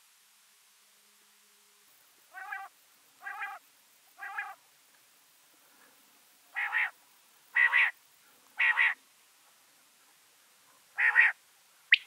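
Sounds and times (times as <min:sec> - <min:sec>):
quail calling: 0:02.3 - 0:03.6, 0:04.2 - 0:04.6, 0:06.5 - 0:08.0, 0:08.6 - 0:09.0, 0:11.0 - 0:12.0.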